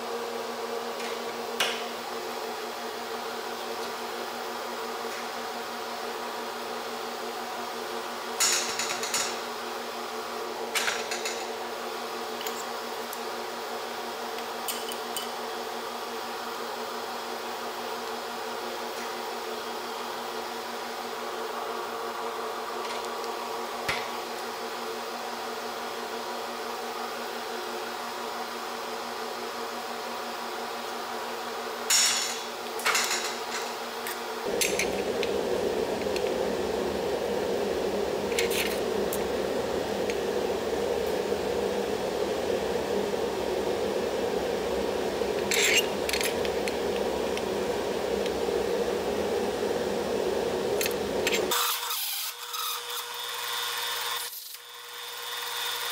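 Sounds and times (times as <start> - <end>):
steady buzzing hum: 34.2 - 51.7.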